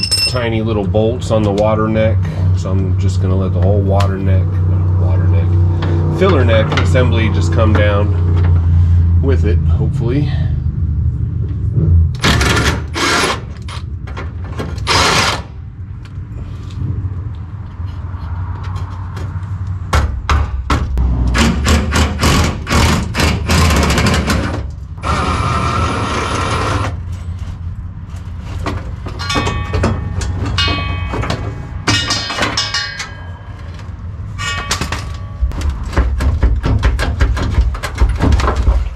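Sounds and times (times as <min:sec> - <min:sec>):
metal knocks: 0:28.6 - 0:38.9.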